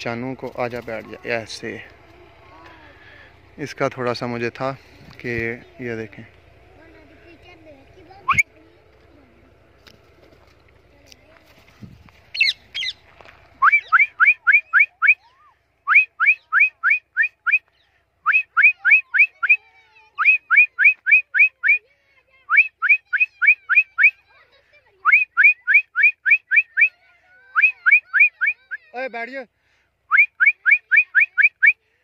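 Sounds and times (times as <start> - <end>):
person whistling rising runs: 8.3 - 8.5, 13.6 - 15.2, 15.9 - 19.6, 20.2 - 21.8, 22.5 - 24.2, 25.0 - 28.8, 30.1 - 31.8.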